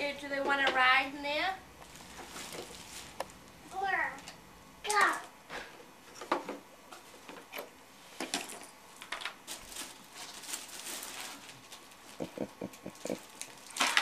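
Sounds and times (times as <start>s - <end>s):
cellophane crinkling: 1.8s - 3.8s, 9.0s - 14.0s.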